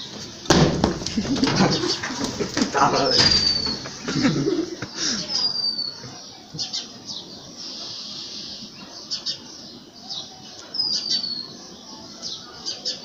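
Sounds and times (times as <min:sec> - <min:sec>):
birds chirping: 0:00.0 - 0:13.0
bird whistle falling in pitch: 0:03.2 - 0:03.8.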